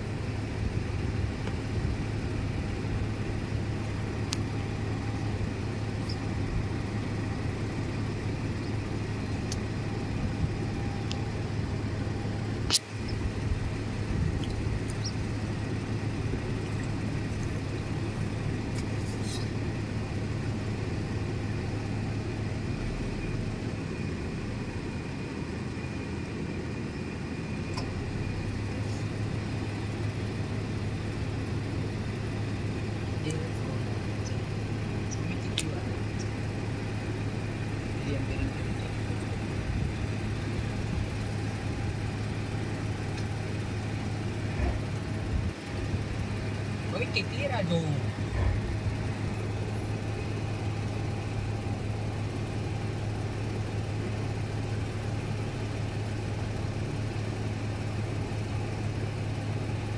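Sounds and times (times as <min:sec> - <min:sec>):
vehicle engine idling: 0:00.0 - 0:59.9
sharp click: 0:12.7 - 0:12.9.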